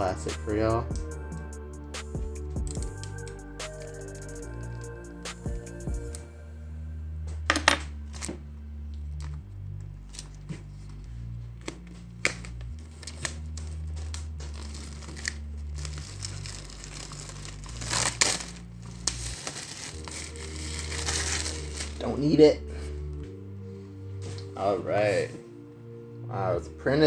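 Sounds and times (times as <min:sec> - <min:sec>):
plastic wrap crinkling and snapping: 0:11.6 - 0:22.0.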